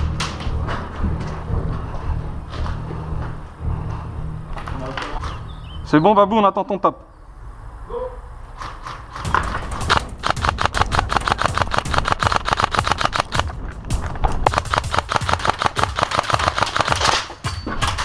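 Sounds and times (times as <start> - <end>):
airsoft rifles firing rapidly: 9.1 - 18.0.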